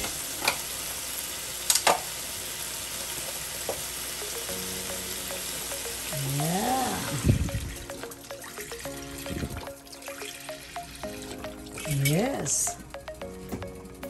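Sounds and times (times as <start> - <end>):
food sizzling in a pan: 0.0 - 7.1.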